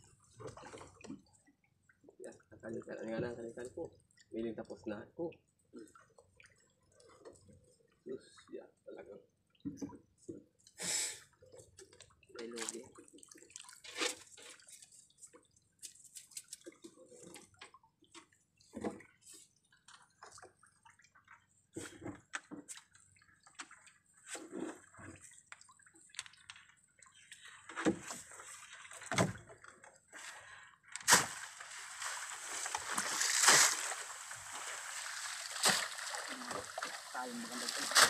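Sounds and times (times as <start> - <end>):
water splashing and streaming: 0.0 - 4.5, 11.3 - 38.0
water dripping: 31.2 - 38.0.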